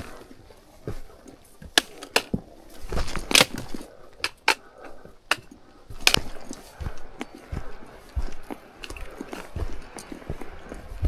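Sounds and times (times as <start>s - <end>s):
crunching: 0.0s - 10.6s
footsteps on rocky trail: 0.0s - 11.0s.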